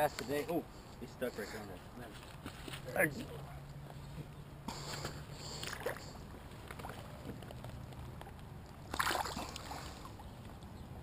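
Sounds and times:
water splashing: 8.8s - 10.2s.

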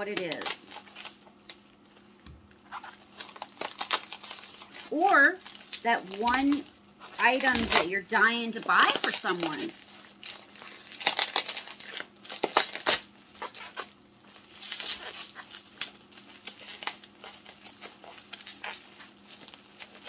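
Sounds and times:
packing material crinkling: 0.0s - 20.0s.

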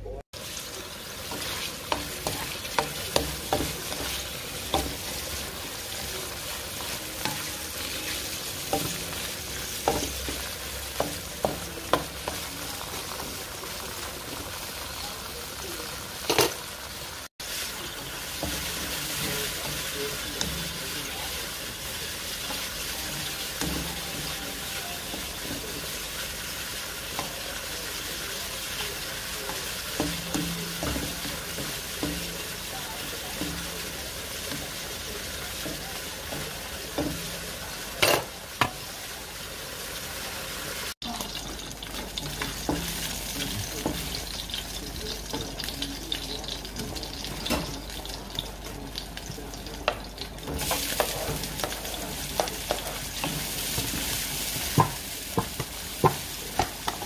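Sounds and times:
meat sizzling in a wok: 0.3s - 57.0s
spatula scraping a pan: 1.2s - 13.1s.

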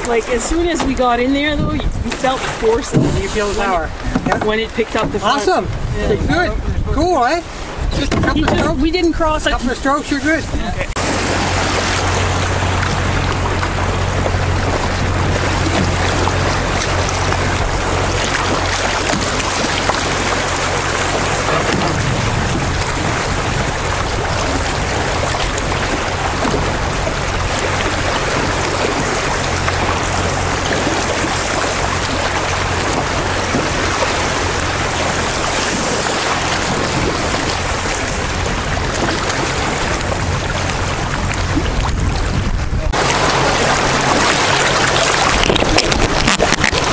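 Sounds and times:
river rapids rushing: 10.9s - 41.6s, 43.0s - 46.9s.

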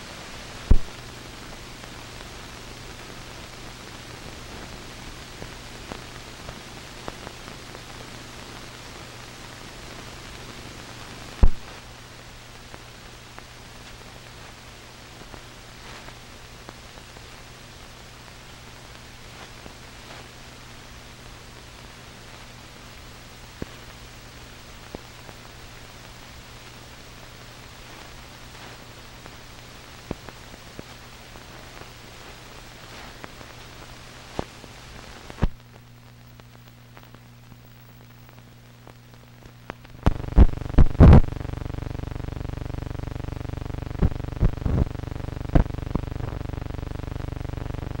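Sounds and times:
film soundtrack hiss: 0.0s - 48.0s
clicks and pops: 0.7s - 0.9s, 11.4s - 11.7s, 39.6s - 41.3s
buzzing hum: 23.0s - 48.0s.

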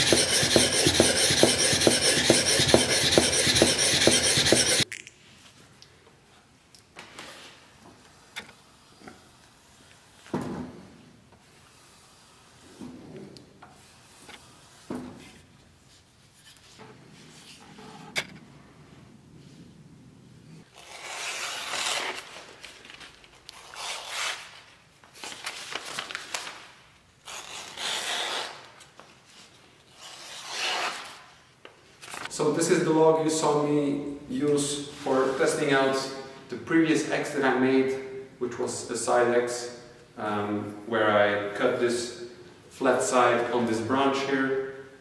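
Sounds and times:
blade rubbing: 0.0s - 4.8s
blade slicing through paper: 20.8s - 22.3s.

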